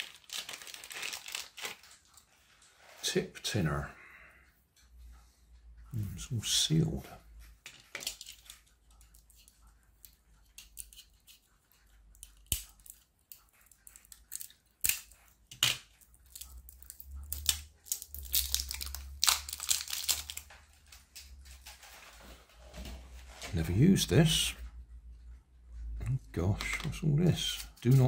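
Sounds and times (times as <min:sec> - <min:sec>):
seal crinkling and tearing: 0:00.0 - 0:02.2, 0:16.3 - 0:21.9.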